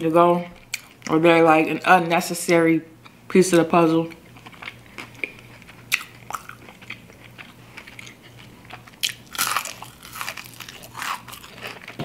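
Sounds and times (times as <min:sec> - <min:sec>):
crunching into fried chicken: 0:04.1 - 0:12.0.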